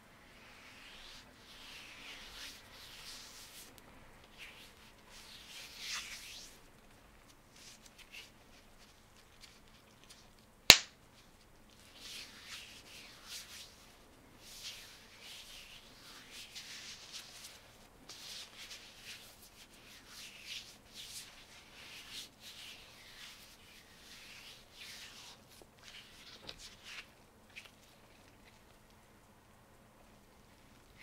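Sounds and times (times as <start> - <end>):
rubber glove snapping: 10.7 - 11.0.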